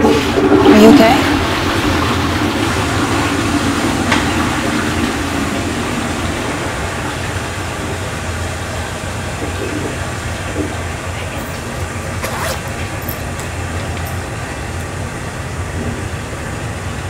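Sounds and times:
toilet flush: 0.0s - 12.2s
ferry engines droning: 0.0s - 17.0s.

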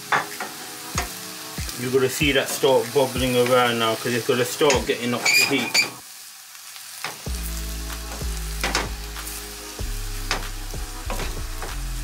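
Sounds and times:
background music: 0.0s - 5.5s, 7.3s - 12.0s
vegetables sizzling in a frying pan: 0.0s - 12.0s.

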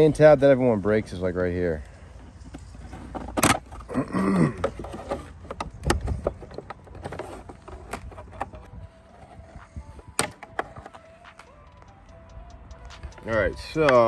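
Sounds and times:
handling rustle: 0.9s - 11.5s.

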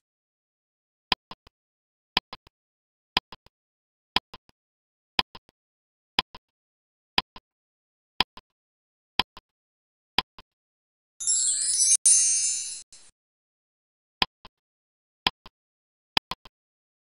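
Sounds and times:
high jingling chime: 11.2s - 13.1s.

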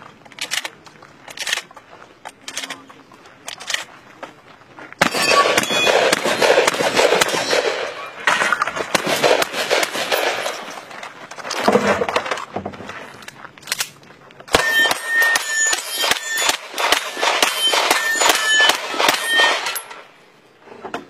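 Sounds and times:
gun handling noise: 0.0s - 4.1s, 10.2s - 14.5s
rapid pistol fire: 5.0s - 8.0s, 8.9s - 10.6s, 15.7s - 19.7s
steel plate ringing ding: 14.6s - 16.6s, 17.5s - 19.9s.

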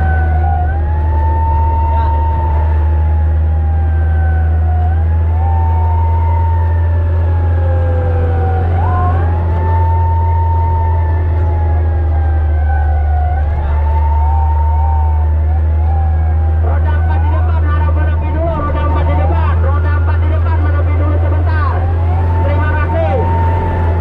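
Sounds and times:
fire truck siren wailing: 0.0s - 24.0s
siren chirps: 0.0s - 24.0s
truck engine drone: 0.0s - 24.0s.

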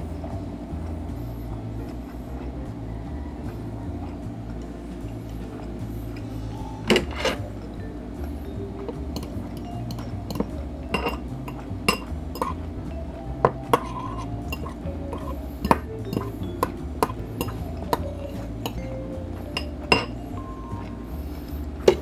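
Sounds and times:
background music with steady beat: 0.0s - 22.0s
metal fork clinking on glass bowl: 9.1s - 12.6s, 13.4s - 18.9s, 19.5s - 20.2s.

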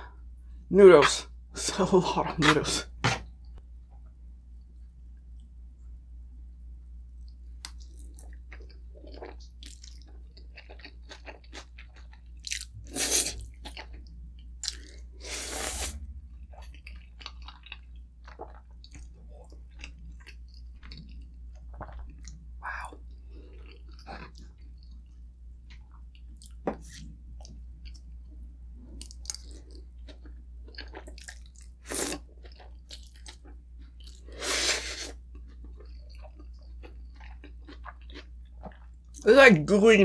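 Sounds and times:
chewing and mouth sounds: 7.2s - 15.1s, 16.3s - 28.1s, 28.9s - 39.2s.

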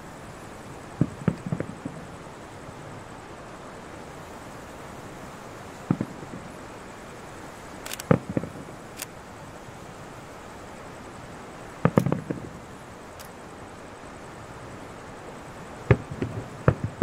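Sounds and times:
steady hiss: 0.0s - 17.0s
distant fireworks bangs: 1.0s - 2.1s, 5.8s - 6.5s, 8.0s - 8.8s, 11.8s - 12.6s, 15.9s - 17.0s.

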